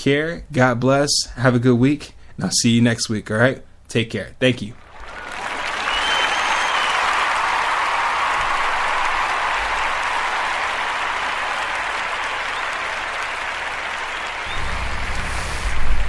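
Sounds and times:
applause: 0:04.8 - 0:16.0.

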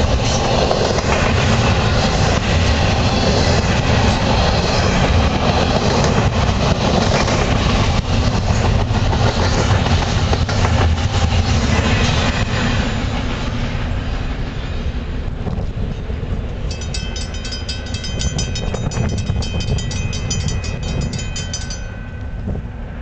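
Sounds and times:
freight train rumbling and clattering: 0:00.0 - 0:23.0
crossing bell ringing: 0:16.7 - 0:23.0.

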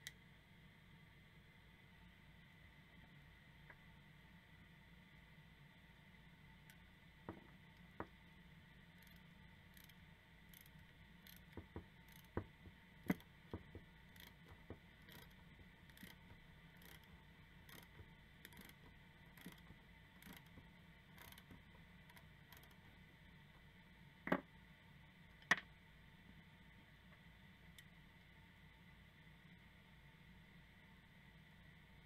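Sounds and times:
wrench clicking on metal nut: 0:09.0 - 0:12.4, 0:14.1 - 0:18.8, 0:19.4 - 0:19.6, 0:20.2 - 0:20.5, 0:21.2 - 0:22.8.

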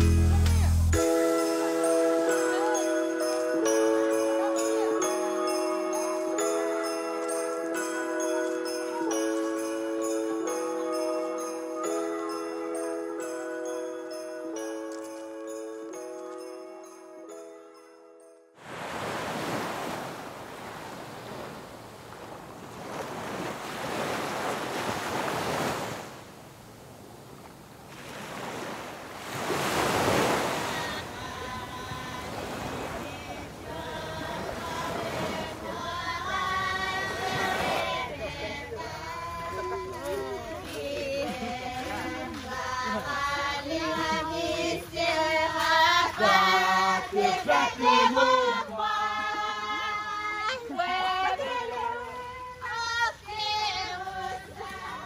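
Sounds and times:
surf washing ashore: 0:18.6 - 0:55.0
children singing: 0:30.5 - 0:55.0.

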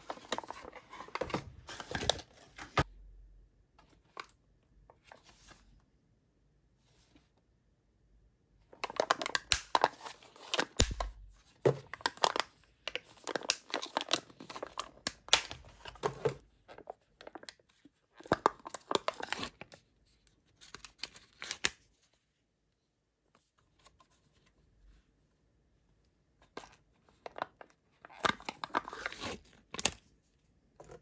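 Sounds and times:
plastic cups snapped apart: 0:09.2 - 0:09.9, 0:15.1 - 0:15.7.

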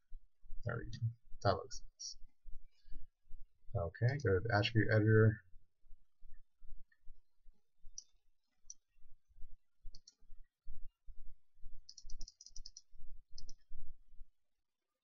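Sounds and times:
computer mouse clicks: 0:07.9 - 0:08.8, 0:09.9 - 0:10.2, 0:11.9 - 0:13.7.

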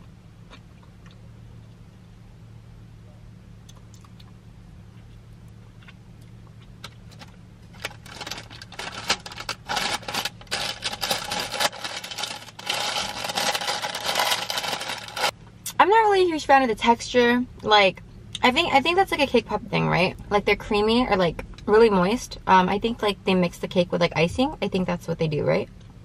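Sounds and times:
low steady hum: 0:00.0 - 0:26.0
paper bag crinkling: 0:07.7 - 0:15.3.

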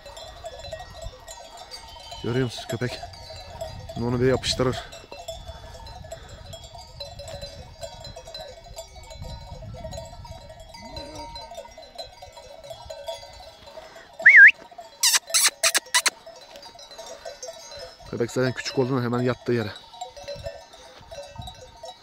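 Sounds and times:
sheep bells ringing: 0:00.0 - 0:22.0
faint sheep bleats: 0:10.8 - 0:11.5.

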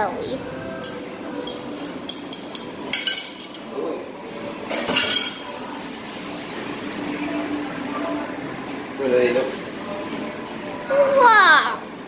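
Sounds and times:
bowl and pan clinking: 0:00.2 - 0:03.7, 0:04.7 - 0:05.6.

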